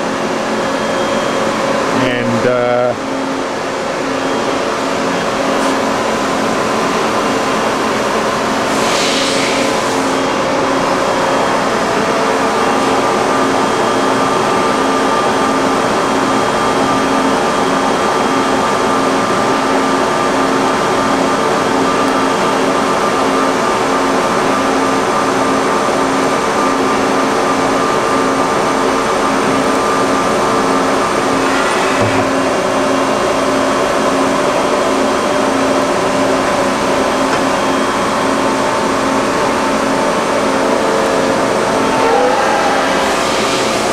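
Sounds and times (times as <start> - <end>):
machine pulsing mechanical hum: 0.0 - 43.9
brief knock: 32.0 - 32.4.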